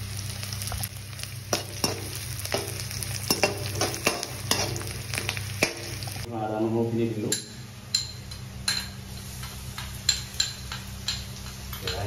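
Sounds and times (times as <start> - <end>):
onions sizzling in oil: 0.0 - 6.4, 8.5 - 12.0
spatula scraping and knocking pan: 1.5 - 6.1.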